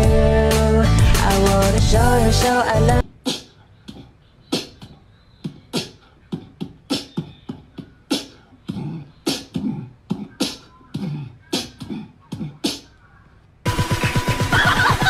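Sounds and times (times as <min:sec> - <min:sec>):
beatbox clicks and thuds: 0:04.6 - 0:12.8.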